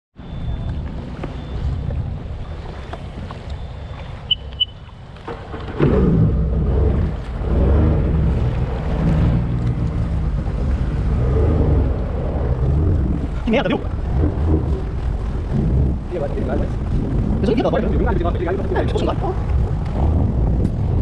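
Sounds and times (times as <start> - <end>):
short beeps: 0.2 - 1.9, 2.8 - 5.0
jet ski engine revving: 5.2 - 21.0.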